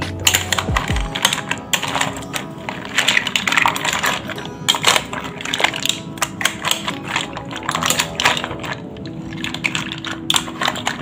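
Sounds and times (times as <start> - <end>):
mussel shells clattering in pot: 0.0 - 11.0.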